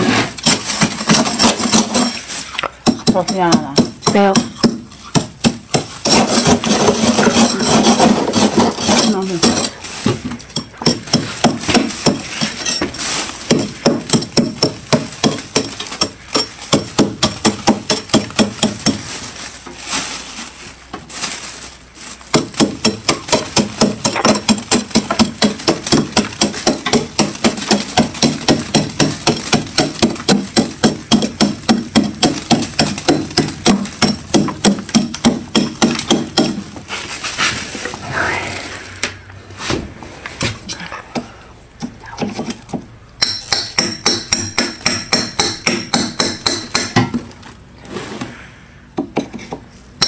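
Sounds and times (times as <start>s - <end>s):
metal spoon scraping frost: 0.0s - 5.2s, 5.8s - 11.4s.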